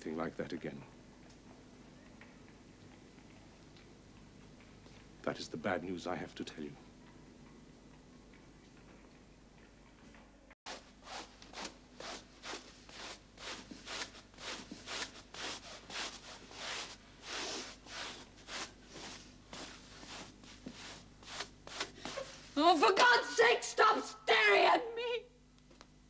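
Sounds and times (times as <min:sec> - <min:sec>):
hand brush sweeping a rug: 0:10.7 - 0:22.7.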